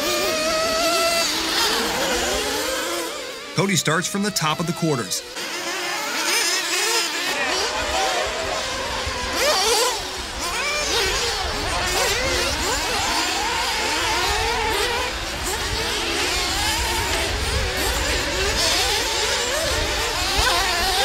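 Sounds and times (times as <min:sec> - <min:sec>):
rc buggy engines screaming: 0:00.0 - 0:21.0.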